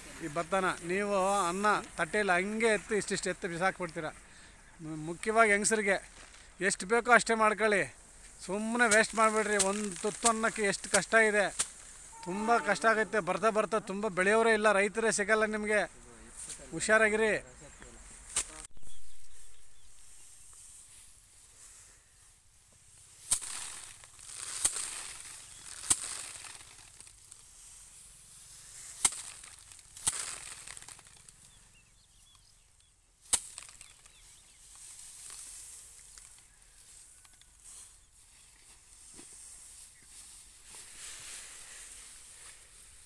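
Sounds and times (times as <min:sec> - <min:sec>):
straw rustling: 0:00.0 - 0:32.6, 0:33.2 - 0:43.0
paddy bundles whacking: 0:08.4 - 0:13.9, 0:18.3 - 0:18.7, 0:23.1 - 0:27.7, 0:28.6 - 0:31.6, 0:33.2 - 0:36.4.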